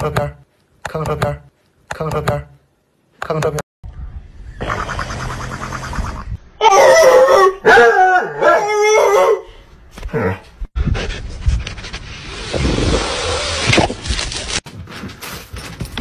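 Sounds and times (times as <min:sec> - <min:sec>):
dog howling and whining: 0:06.6 - 0:09.4.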